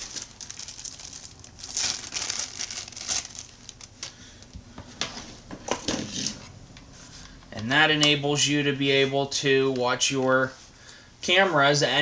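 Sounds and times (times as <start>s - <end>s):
plastic bag crinkling: 0.0s - 4.5s.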